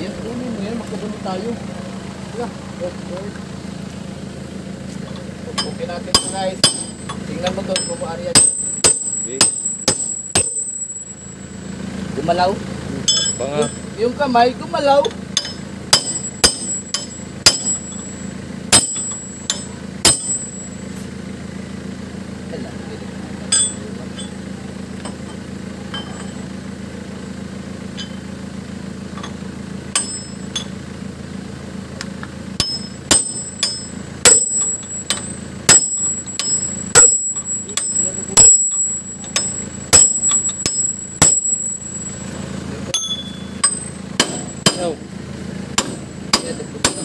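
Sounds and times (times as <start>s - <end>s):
steel tool striking metal bearing: 5.1s - 11.2s, 13.0s - 13.9s, 15.0s - 20.8s, 23.5s - 24.4s, 25.0s - 26.4s, 27.9s - 28.3s, 29.1s - 30.8s, 32.6s - 42.3s, 42.9s - 45.0s, 45.8s - 47.0s.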